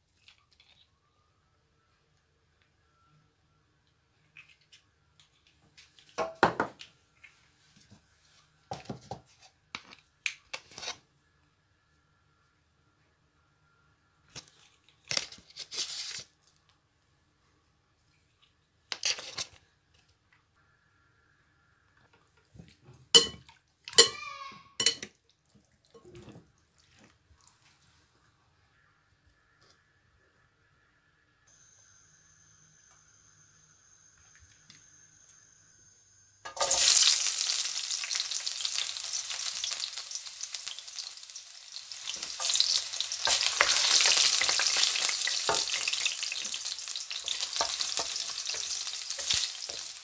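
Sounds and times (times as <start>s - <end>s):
spoon clinking glass bowl: 23.2s - 25.1s
seasoning shakers rattling: 36.5s - 50.0s.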